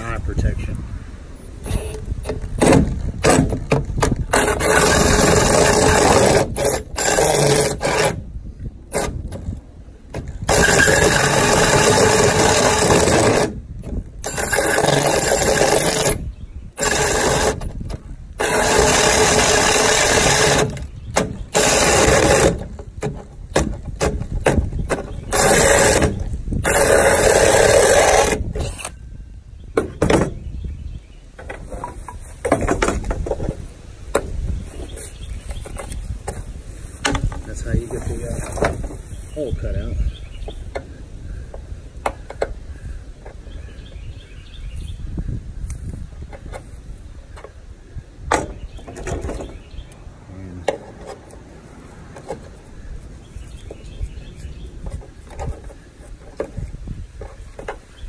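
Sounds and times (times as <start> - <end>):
drill with hole saw grinding: 4.2 - 8.3, 10.4 - 13.6, 14.2 - 16.2, 16.8 - 17.8, 18.4 - 22.8, 25.0 - 29.0.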